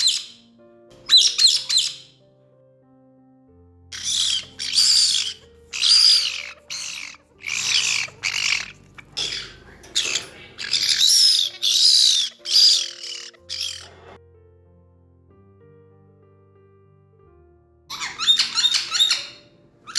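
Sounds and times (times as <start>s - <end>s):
parrot screeching squawks: 0.0s - 0.4s, 1.1s - 2.1s, 3.9s - 14.2s, 17.9s - 19.9s
soft music: 0.0s - 19.9s.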